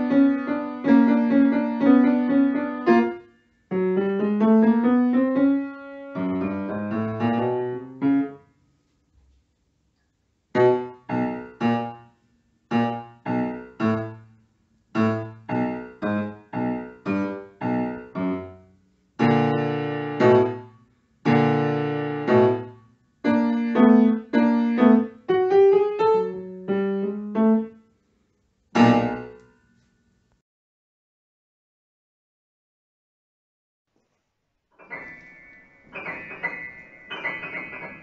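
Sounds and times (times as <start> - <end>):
grand piano playing: 0.0 - 8.4, 10.6 - 12.0, 12.7 - 14.2, 15.0 - 18.6, 19.2 - 20.7, 21.3 - 27.7, 28.8 - 29.4, 34.8 - 38.0.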